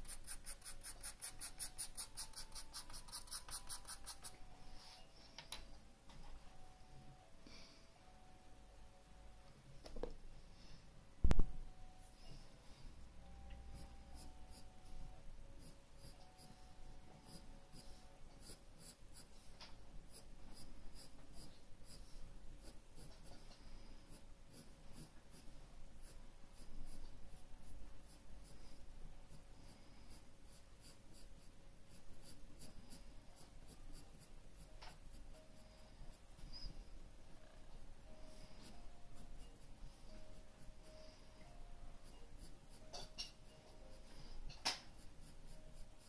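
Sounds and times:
pencil scratching on paper: 0:00.0 - 0:04.4, 0:13.8 - 0:14.9, 0:15.6 - 0:19.5, 0:20.1 - 0:35.3, 0:42.0 - 0:43.0, 0:45.0 - 0:46.0.

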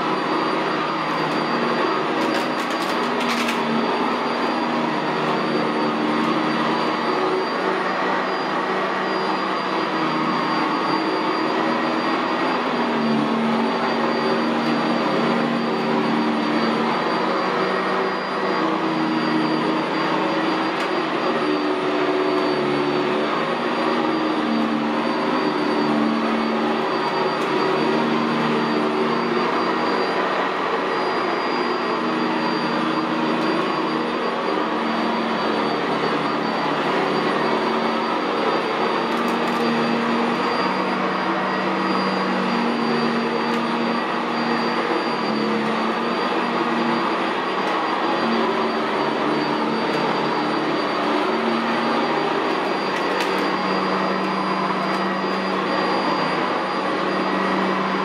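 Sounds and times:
upright vacuum running on carpet: 0:00.0 - 0:58.0.

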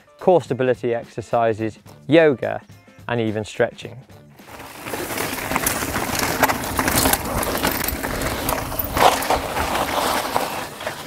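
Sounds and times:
bike tyres crunching on gravel: 0:04.4 - 0:11.0
stones clicking and knocking: 0:04.4 - 0:11.0.

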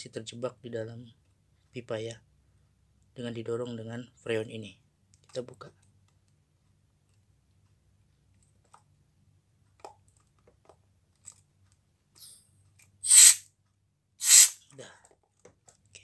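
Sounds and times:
refrigerant gas hissing from hose: 0:13.1 - 0:13.4, 0:14.2 - 0:14.6.

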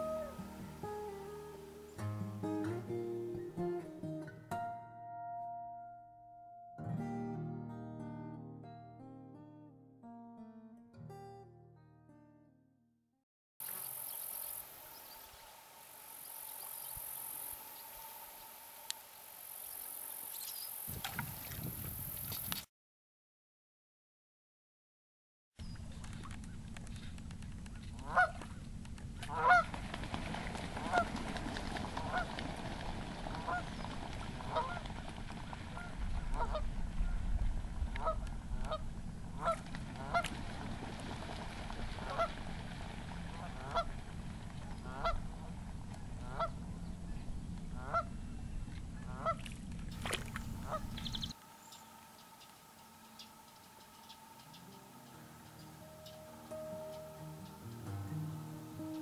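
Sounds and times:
geese honking: 0:00.0 - 0:02.0, 0:28.0 - 0:28.5, 0:29.3 - 0:36.7, 0:38.0 - 0:38.8, 0:39.4 - 0:40.4, 0:41.0 - 0:42.6, 0:43.3 - 0:44.0, 0:44.6 - 0:45.5, 0:46.2 - 0:46.7, 0:47.7 - 0:48.2, 0:49.0 - 0:59.0.

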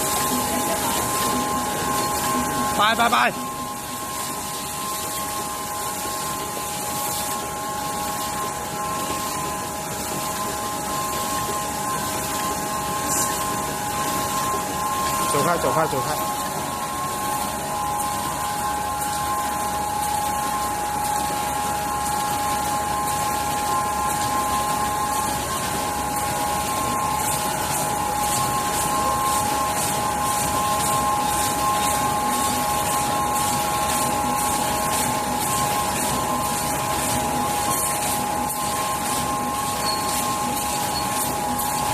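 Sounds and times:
high steady tones: 0:00.0 - 0:10.4
machinery humming: 0:00.0 - 0:41.9.

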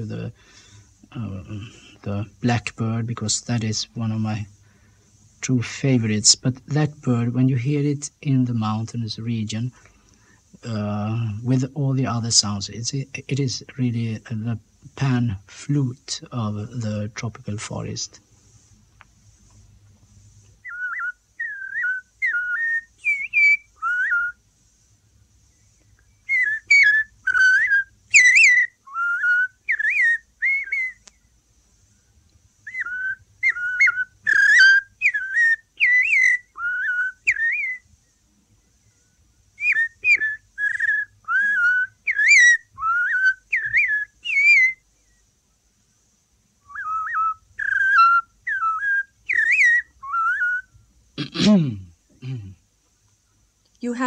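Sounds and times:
faint hum: 0:00.0 - 0:54.0
man whistling birdsong: 0:20.6 - 0:24.4, 0:25.5 - 0:31.0, 0:32.6 - 0:38.2, 0:38.8 - 0:45.3, 0:46.6 - 0:50.8.

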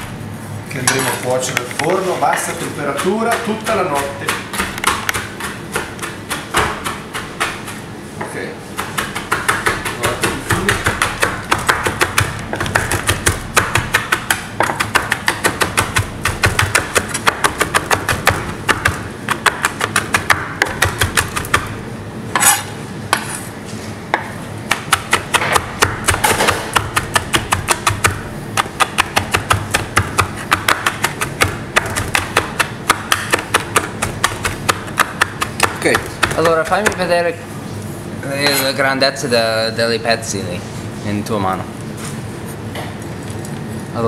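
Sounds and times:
knife chopping on cutting board: 0:02.4 - 0:23.4, 0:24.1 - 0:37.2.

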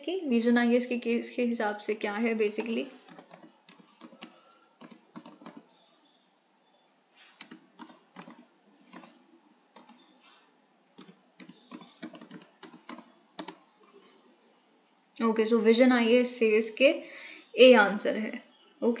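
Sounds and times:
typing on computer keyboard: 0:02.5 - 0:05.8, 0:07.4 - 0:09.2, 0:09.8 - 0:10.1, 0:11.0 - 0:13.7.

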